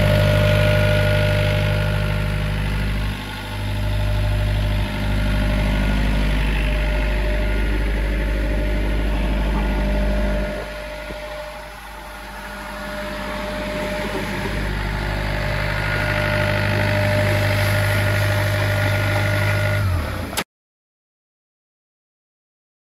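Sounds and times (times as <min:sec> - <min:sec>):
diesel compressor engine idling: 0:00.0 - 0:20.4.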